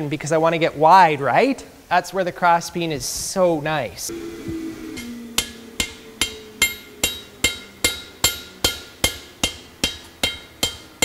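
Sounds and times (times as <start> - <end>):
hammer striking hot steel on anvil: 5.0 - 11.0.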